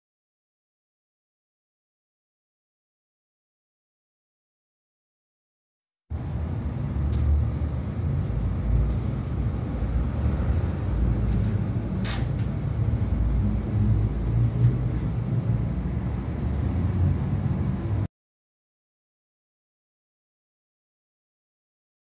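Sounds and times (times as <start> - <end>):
low rumble: 6.1 - 18.1.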